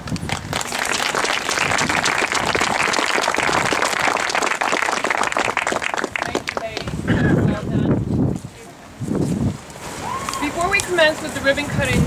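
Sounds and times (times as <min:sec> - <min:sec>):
crowd applauding: 0:00.0 - 0:07.4.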